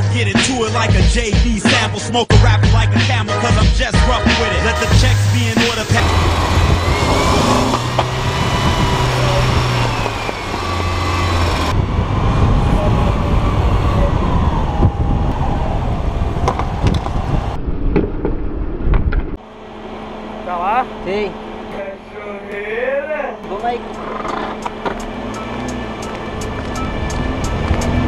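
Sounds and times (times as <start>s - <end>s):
wind rush and road noise: 5.9s - 19.4s, 25.9s - 28.0s.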